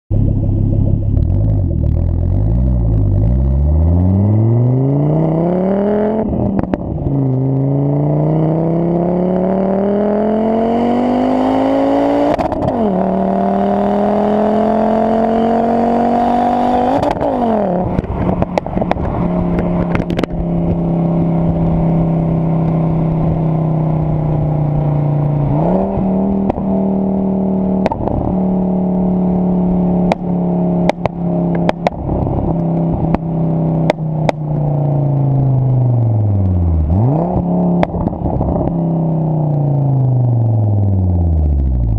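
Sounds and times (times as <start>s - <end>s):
car engine accelerating: 0.1s - 41.9s
exhaust pops: 16.9s - 23.4s, 24.4s - 26.7s, 27.7s - 28.6s, 30.0s - 34.8s, 37.3s - 38.9s.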